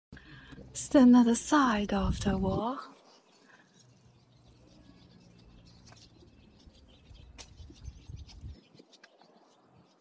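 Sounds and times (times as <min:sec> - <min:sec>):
wind rumble on microphone: 0:01.7 - 0:02.9, 0:06.8 - 0:09.1
faint bird chirps: 0:02.6 - 0:10.0.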